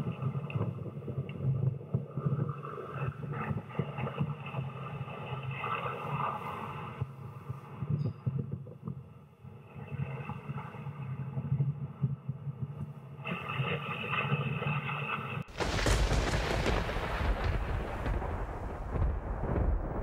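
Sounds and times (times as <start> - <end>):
deep rumbling boom: 15.5 - 20.0.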